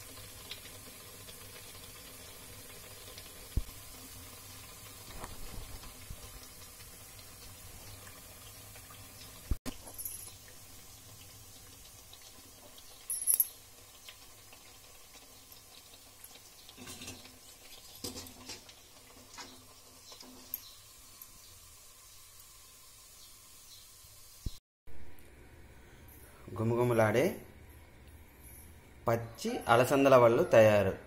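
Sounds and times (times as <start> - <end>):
food deep-frying in oil: 0.0 - 30.9
sharp clinks: 13.1 - 13.6.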